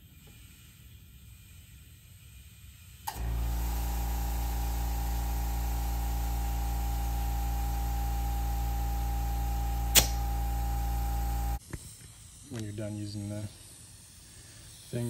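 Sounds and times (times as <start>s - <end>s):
air compressor humming and hissing: 0.0s - 15.0s
sharp click: 9.9s - 10.3s.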